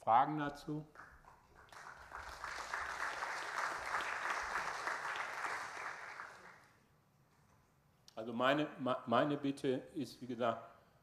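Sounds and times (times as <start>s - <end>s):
audience applauding: 0.9s - 6.8s.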